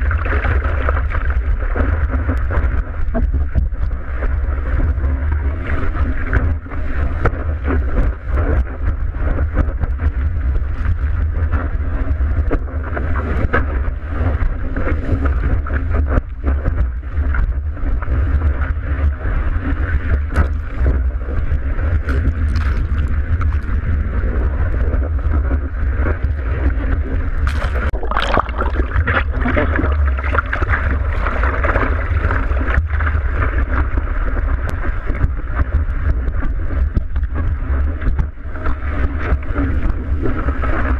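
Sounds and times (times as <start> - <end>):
low rumble of water: 0.0 - 40.9
wind buffeting: 19.1 - 40.9
water sloshing against camera housing: 27.4 - 31.9
short splashes: 27.4 - 32.8.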